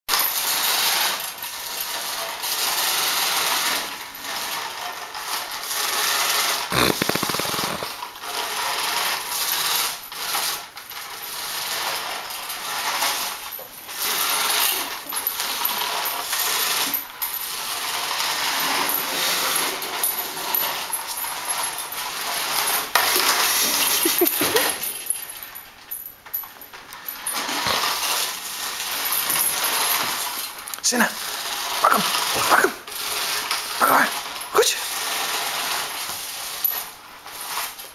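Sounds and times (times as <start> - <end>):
plastic wheels clattering on tile: 0.1 - 25.6, 26.2 - 37.9
toy truck motor whirring: 5.7 - 8.5.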